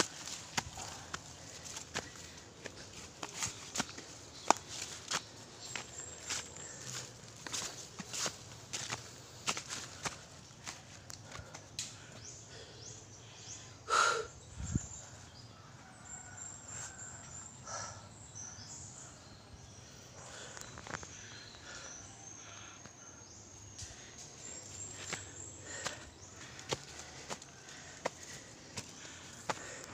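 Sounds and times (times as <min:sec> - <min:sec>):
footsteps on a leafy trail: 0:00.0 - 0:12.3, 0:23.8 - 0:29.9
birds chirping: 0:00.0 - 0:29.9.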